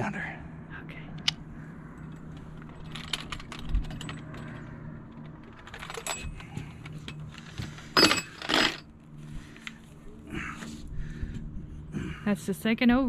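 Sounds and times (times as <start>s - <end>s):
steady low hum: 0.0s - 13.0s
metal grippers clinking and rattling: 2.0s - 8.9s.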